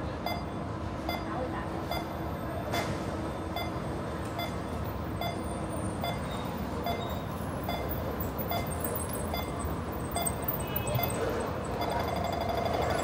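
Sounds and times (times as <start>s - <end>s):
traffic hum: 0.0s - 13.0s
short electronic beep: 3.5s - 3.8s, 8.5s - 11.2s.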